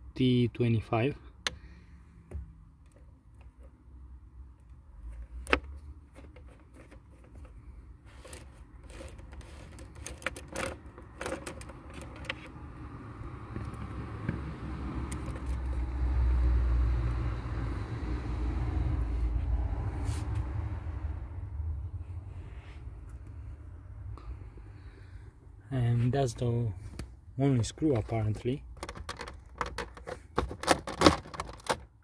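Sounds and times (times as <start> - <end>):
screwdriver clicks and scrapes: 5.4 - 12.5.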